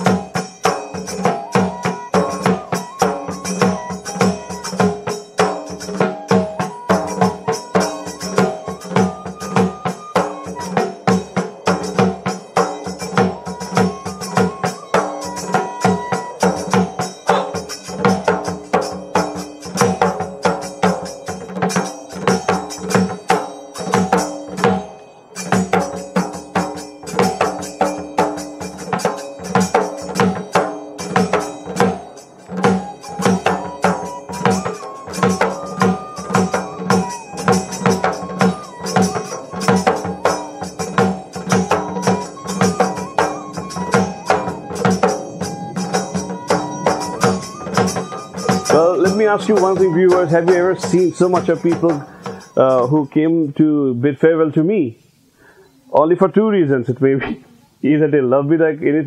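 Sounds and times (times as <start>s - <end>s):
dhol drum beat: 0.0s - 52.9s
bamboo flute melody: 0.0s - 53.7s.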